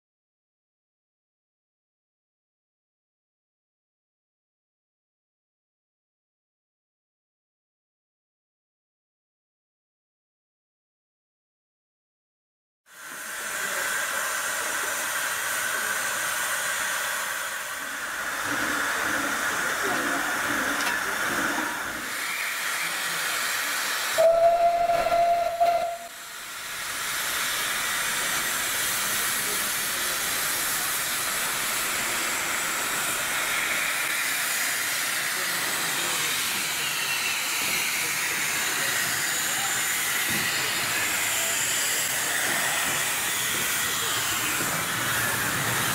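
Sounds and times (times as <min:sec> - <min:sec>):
steam locomotive hissing: 0:12.9 - 0:45.9
steam whistle blast: 0:24.2 - 0:26.2.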